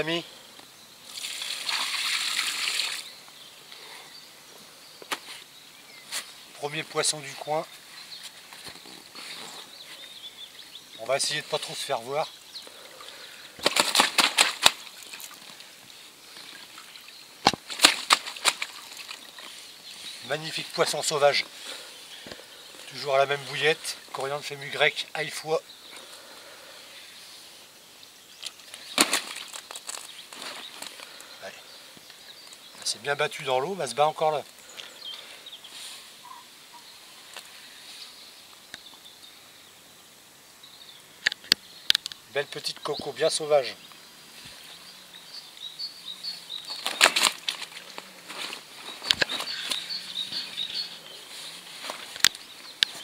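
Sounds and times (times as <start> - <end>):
faint high hiss: 0.0 - 53.0
water splashing: 1.1 - 3.1, 11.5 - 21.8
fish knocking and slapping on mat: 13.6 - 15.2.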